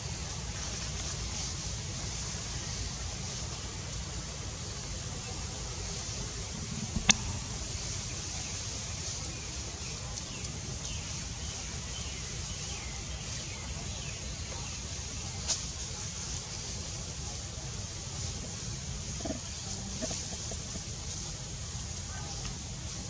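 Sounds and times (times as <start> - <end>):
outdoor background hiss: 0.0 - 23.0
sharp click: 7.0 - 7.3.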